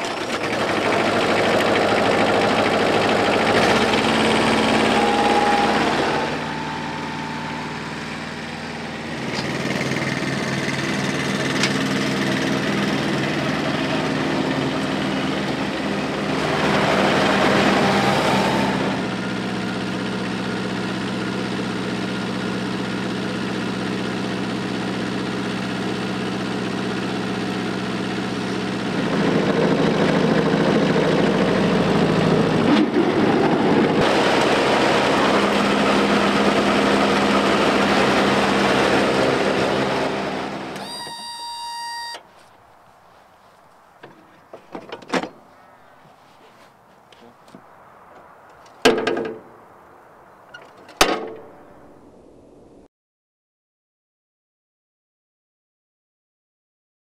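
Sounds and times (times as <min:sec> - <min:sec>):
mower diesel engine running: 0:00.0 - 0:42.6.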